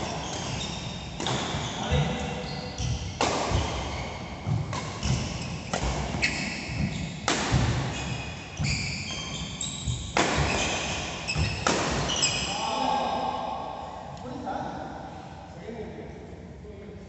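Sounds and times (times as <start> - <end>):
shoes squeaking on court floor: 0.0 - 12.5
racket striking shuttlecock: 4.4 - 8.1, 9.9 - 10.7, 11.3 - 12.3.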